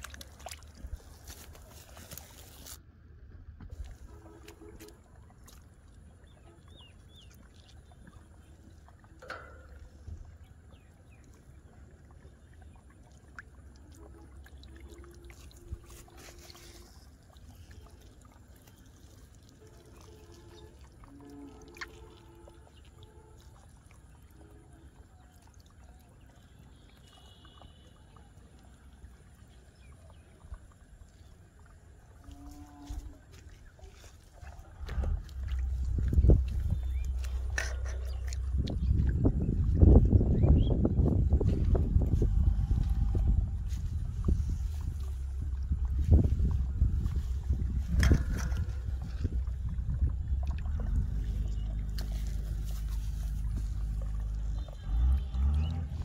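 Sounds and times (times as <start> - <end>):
fish struggling in water: 0.0 - 2.9, 3.6 - 24.2, 29.7 - 56.0
hands splashing in muddy water: 0.0 - 2.9, 12.3 - 27.8, 32.3 - 56.0
water trickling: 0.0 - 2.9, 3.5 - 56.0.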